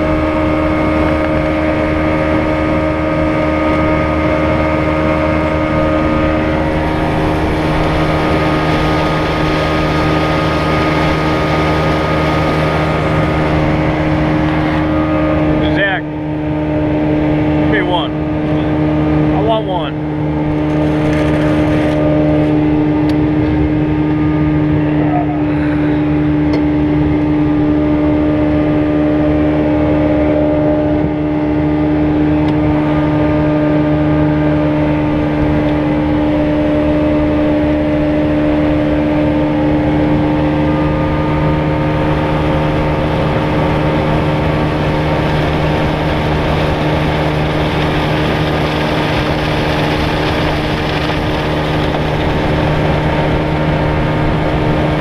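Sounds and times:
outboard motor running: 0.0s - 55.0s
wind and water hiss: 41.2s - 55.0s.

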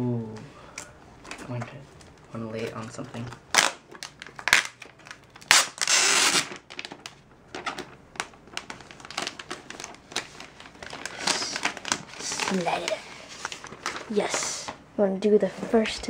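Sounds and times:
plastic wrap crinkling: 1.2s - 14.8s.

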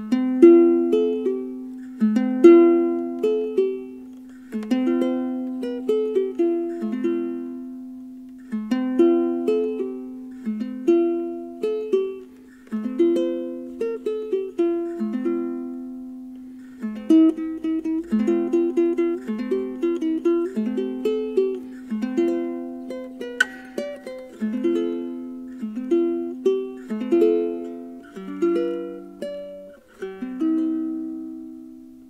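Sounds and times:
ukulele plucked melody: 0.0s - 32.0s.

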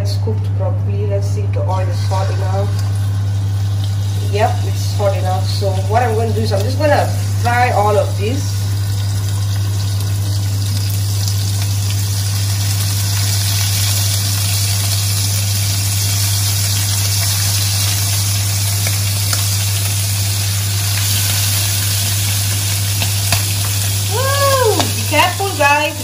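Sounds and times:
steady low hum: 0.0s - 26.0s
squid sizzling in a wok: 1.9s - 26.0s.

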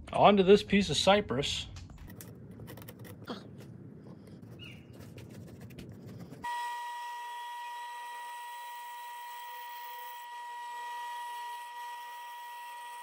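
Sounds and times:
pencil scratching on wood: 4.1s - 6.5s
bandsaw whining: 6.4s - 13.0s.

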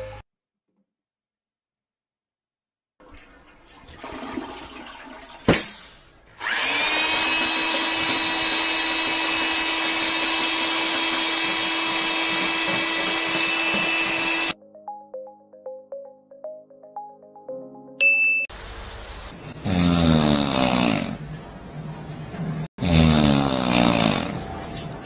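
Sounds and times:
small electric motor whining: 6.4s - 14.6s.

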